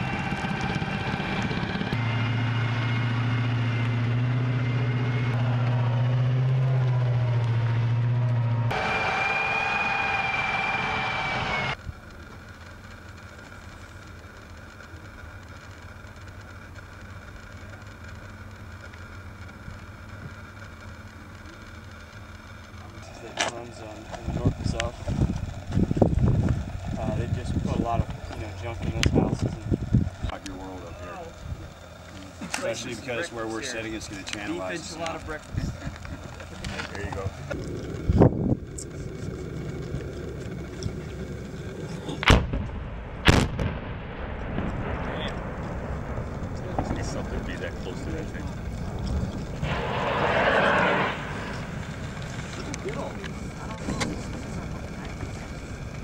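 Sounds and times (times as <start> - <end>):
steady low rumble: 0.0 - 8.8, 11.6 - 56.0
low engine drone: 0.0 - 56.0
distant explosion bangs: 42.2 - 52.9.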